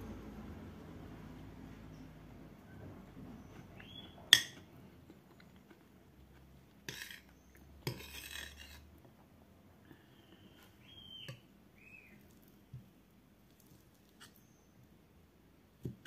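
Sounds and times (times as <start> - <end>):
metal spoon scraping plate: 6.8 - 8.9.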